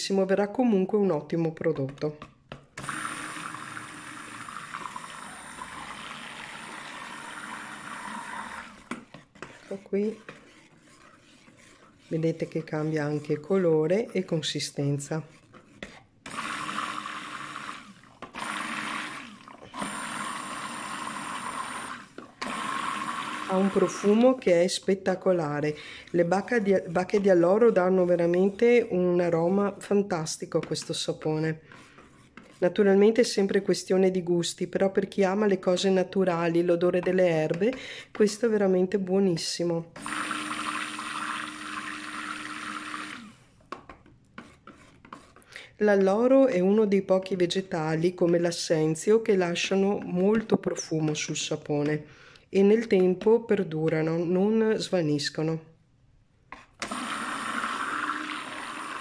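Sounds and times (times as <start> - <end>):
stick blender running: 2.8 - 14.2, 15.6 - 24.5, 40.0 - 43.5, 56.8 - 59.0.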